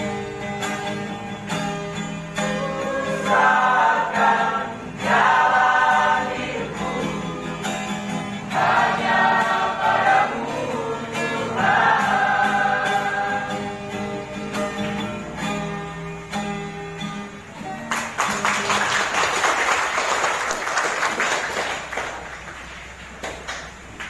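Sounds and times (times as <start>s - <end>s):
choir singing with acoustic guitar: 0.0s - 17.9s
applause: 17.8s - 24.0s.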